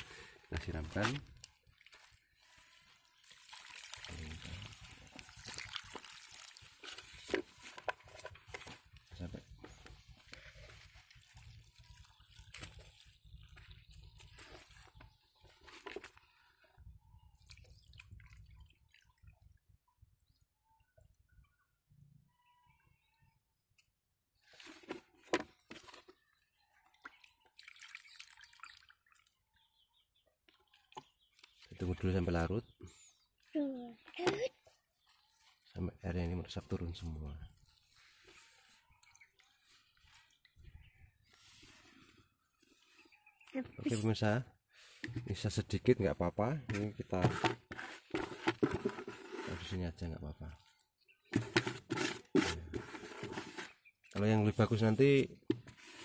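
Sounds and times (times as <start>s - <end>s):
liquid pouring and splashing: 0.0s - 8.9s, 9.8s - 20.2s, 26.9s - 29.5s.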